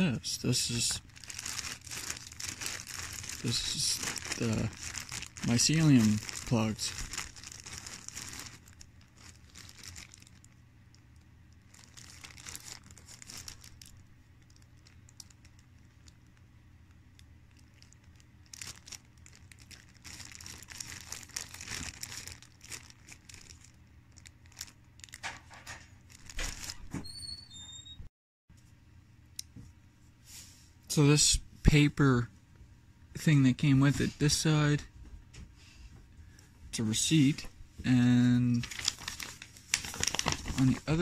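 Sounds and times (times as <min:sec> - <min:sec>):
plastic bag crinkling: 0:00.0 - 0:10.6, 0:11.6 - 0:16.4, 0:17.2 - 0:26.9, 0:38.5 - 0:41.0.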